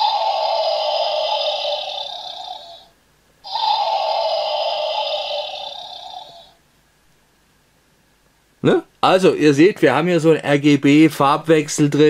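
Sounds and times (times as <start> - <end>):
electronic dinosaur roar: 0.0 - 6.6.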